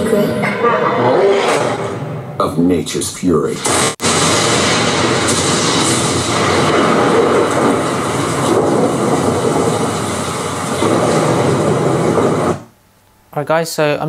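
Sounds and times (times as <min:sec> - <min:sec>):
heavy rain through speakers: 0:03.6 - 0:12.7.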